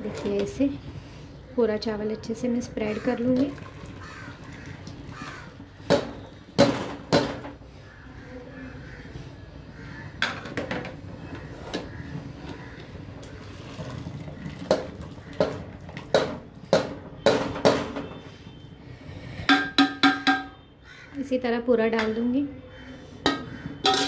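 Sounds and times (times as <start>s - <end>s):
metal strainer clanking on pots: 23.3s - 24.0s.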